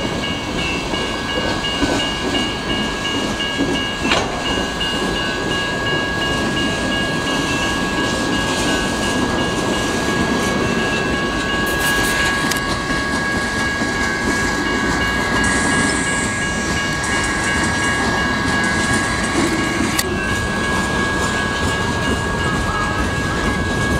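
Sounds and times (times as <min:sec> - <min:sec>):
crossing bells ringing: 0:00.0 - 0:23.9
freight train wheels clacking: 0:00.0 - 0:23.9.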